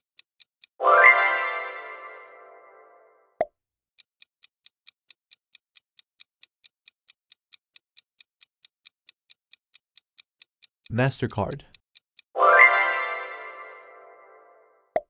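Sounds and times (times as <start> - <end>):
countdown timer ticking: 0.6 - 2.8, 8.8 - 15.0.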